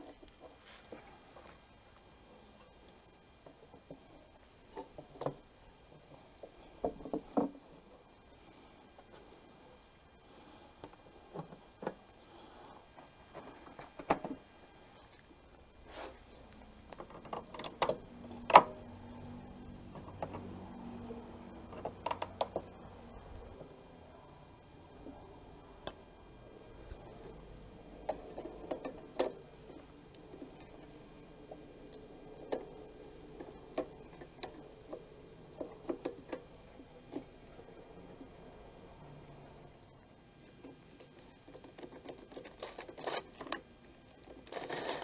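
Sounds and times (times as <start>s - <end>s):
faint steady hum: 0.0s - 45.0s
plastic parts clicking and knocking: 16.9s - 18.8s, 19.9s - 20.6s, 21.6s - 22.8s, 28.0s - 29.4s, 30.1s - 37.4s, 40.4s - 45.0s.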